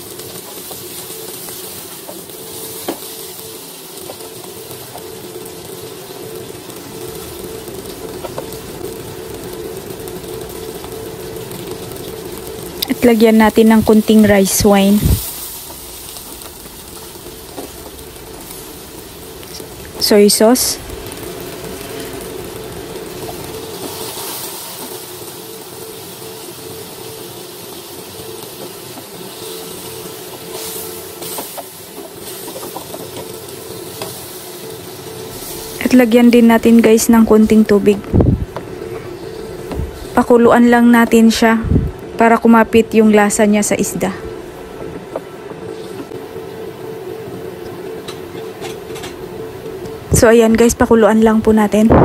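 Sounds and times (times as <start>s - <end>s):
oil sizzling in a frying pan: 0.0s - 52.0s
steady hum: 0.0s - 52.0s.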